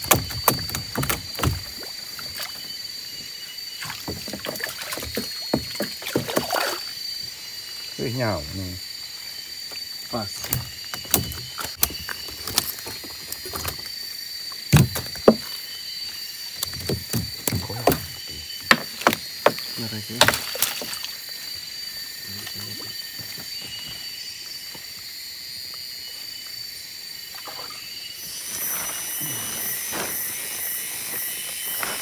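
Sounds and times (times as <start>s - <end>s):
knocks and thumps in a boat: 0.0s - 1.9s, 3.8s - 6.6s, 10.2s - 13.9s, 14.7s - 15.5s, 16.6s - 21.1s.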